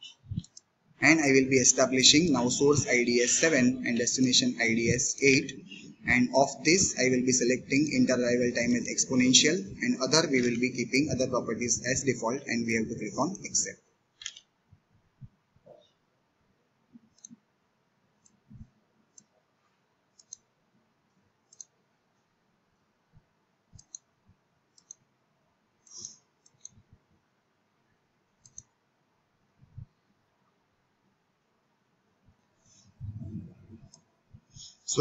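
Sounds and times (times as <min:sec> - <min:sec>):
computer mouse clicks: 0:00.0 - 0:00.7, 0:14.2 - 0:14.5, 0:17.0 - 0:17.5, 0:20.2 - 0:20.5, 0:21.5 - 0:21.8, 0:23.7 - 0:24.2, 0:24.8 - 0:25.1, 0:25.8 - 0:26.9, 0:28.4 - 0:28.8, 0:33.8 - 0:34.1.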